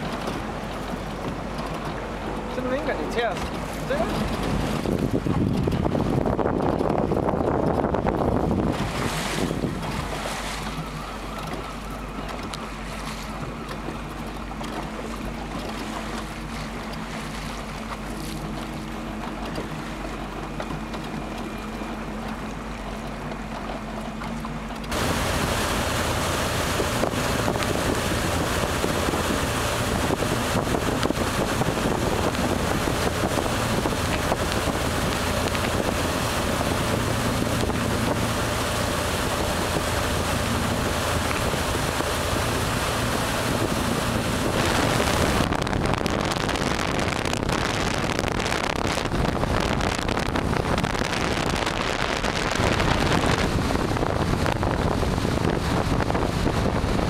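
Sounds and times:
wind on microphone: 0.0s - 23.0s, 24.8s - 57.0s
water noise: 0.0s - 57.0s.

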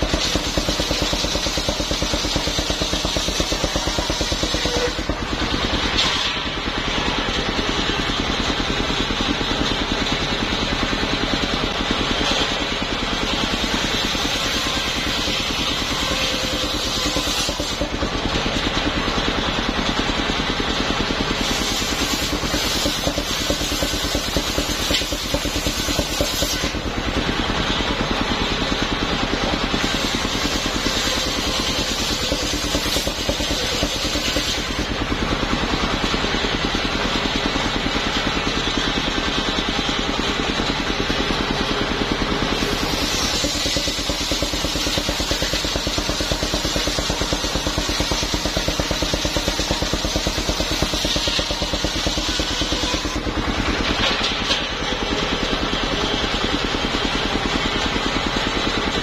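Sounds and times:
sawmill engine running: 0.0s - 59.0s
saw blade cutting hiss: 13.6s - 17.9s, 21.4s - 26.8s, 29.8s - 34.9s, 42.6s - 53.2s.

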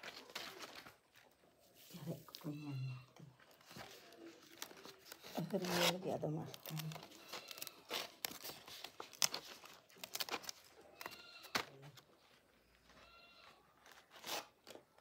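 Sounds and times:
leaves crinkling and rustling: 0.0s - 15.0s
goat bleating: 10.9s - 11.6s, 13.0s - 13.6s.

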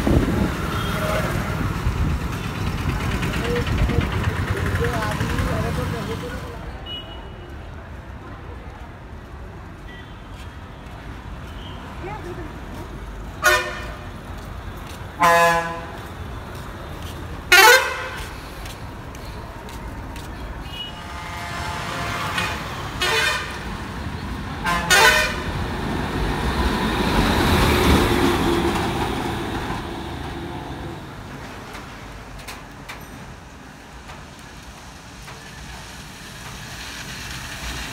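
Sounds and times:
bus engine and road noise: 0.0s - 37.9s
bus air horn blasts: 13.4s - 14.0s, 15.2s - 16.0s, 17.5s - 18.3s, 20.6s - 23.7s, 24.6s - 25.6s.

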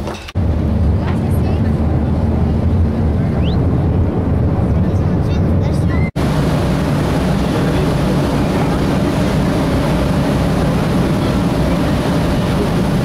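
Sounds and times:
boat engine droning: 0.4s - 13.0s
water rushing from wake: 6.2s - 13.0s.

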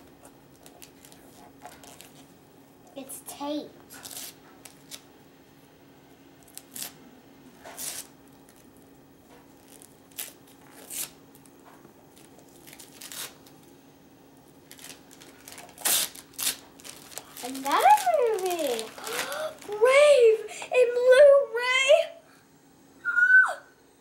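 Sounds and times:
wrapping paper tearing: 0.5s - 2.3s, 3.9s - 5.1s, 6.4s - 7.0s, 7.6s - 8.7s, 9.6s - 11.5s, 12.1s - 13.6s, 14.6s - 20.3s.

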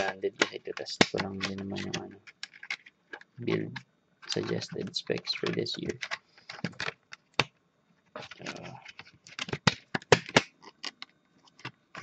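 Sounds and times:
plastic case clicks and snaps: 8.4s - 12.0s.

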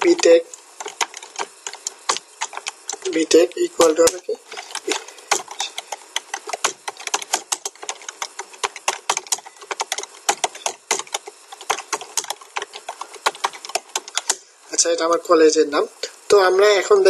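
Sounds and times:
keyboard key clicks: 3.8s - 14.4s.

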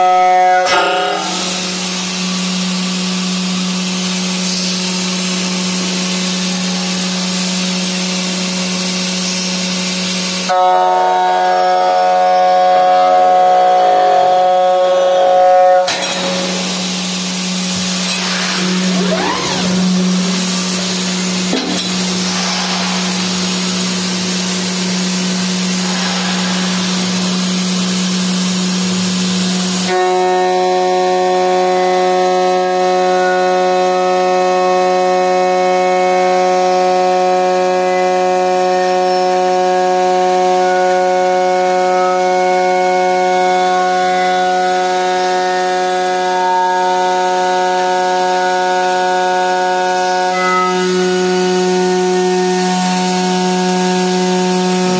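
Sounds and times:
milling machine cutting whine: 0.0s - 54.9s
milling spindle whine: 11.8s - 30.3s.

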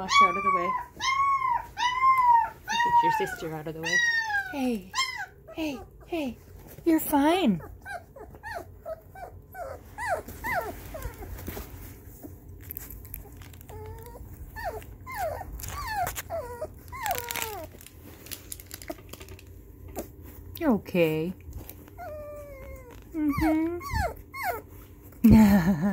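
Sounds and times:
puppy whimpering and whining: 0.0s - 6.1s, 7.3s - 17.8s, 21.6s - 25.3s.

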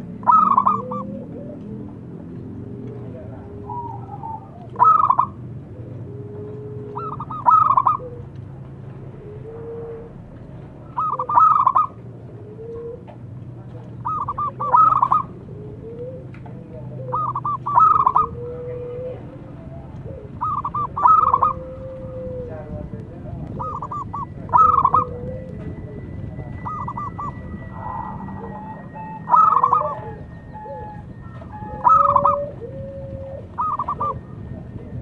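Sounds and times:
dove cooing: 0.0s - 35.0s.

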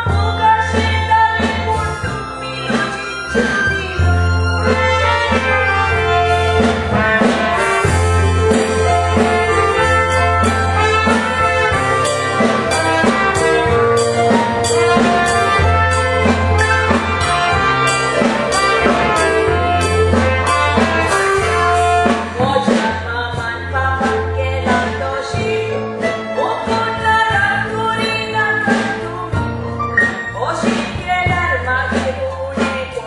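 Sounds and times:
horns: 0.0s - 26.5s, 27.2s - 31.6s
live band playing: 0.0s - 33.0s
drum beat: 6.6s - 21.7s.

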